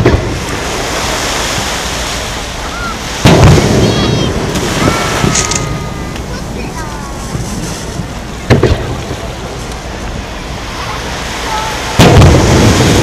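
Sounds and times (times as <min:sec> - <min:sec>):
firework boom: 0:03.2 - 0:06.6, 0:07.2 - 0:09.4, 0:12.0 - 0:13.0.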